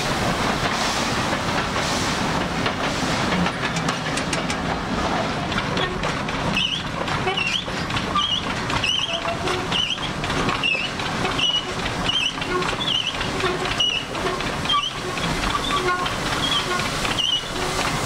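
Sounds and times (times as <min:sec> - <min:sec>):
short high squeak: 0:14.7 - 0:17.5.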